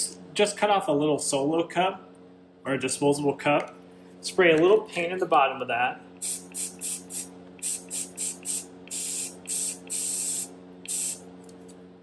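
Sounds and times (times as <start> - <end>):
steady low hum: 0.0 - 12.0
aerosol spray hissing bursts: 6.2 - 11.2.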